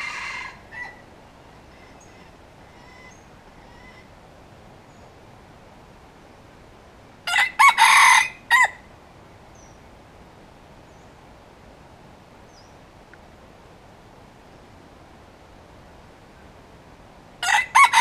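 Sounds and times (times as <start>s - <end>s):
rooster crowing: 0.0s - 4.1s, 7.2s - 8.8s, 17.4s - 18.0s.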